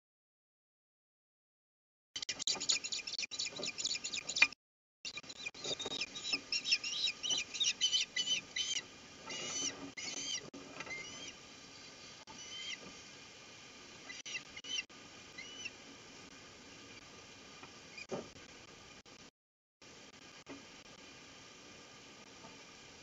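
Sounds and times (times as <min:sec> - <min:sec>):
ospreys chirping shrilly: 0:02.2 - 0:04.5, 0:05.1 - 0:12.9, 0:14.0 - 0:15.8
rising and falling osprey calls: 0:02.3 - 0:04.5, 0:05.1 - 0:12.8, 0:14.0 - 0:15.8.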